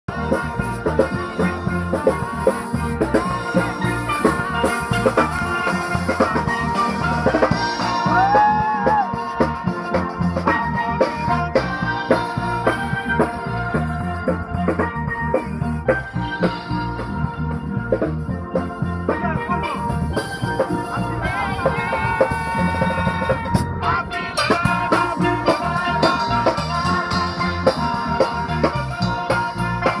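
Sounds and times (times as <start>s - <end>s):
drum kit: 0.1s - 30.0s
guitar: 0.1s - 30.0s
steel pans playing melody: 0.1s - 30.0s.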